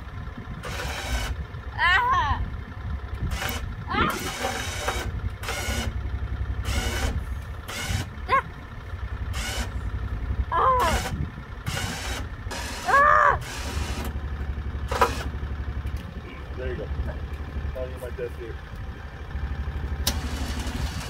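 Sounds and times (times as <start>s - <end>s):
electric winch humming: 0.0s - 1.7s, 3.3s - 15.9s, 19.2s - 21.0s
child calling out: 1.8s - 2.4s, 3.9s - 4.2s, 8.3s - 8.6s, 10.5s - 11.1s, 12.8s - 13.5s.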